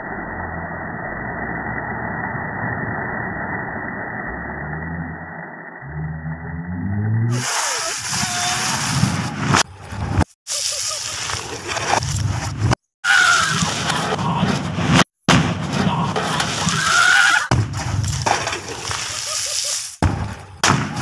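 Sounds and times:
water spray and splashing: 0:07.3 - 0:09.2, 0:10.5 - 0:13.9, 0:16.3 - 0:20.0.

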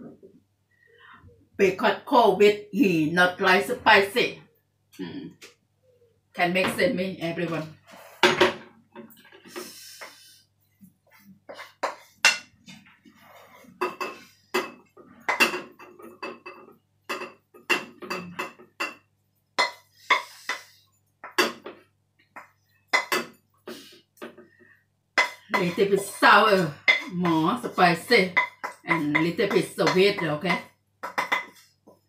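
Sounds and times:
spatula scraping metal pan: 0:19.6 - 0:20.8.

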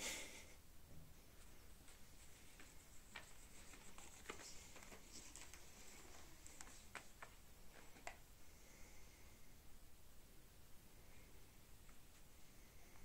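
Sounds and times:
light taps and scratches: 0:01.4 - 0:08.2.

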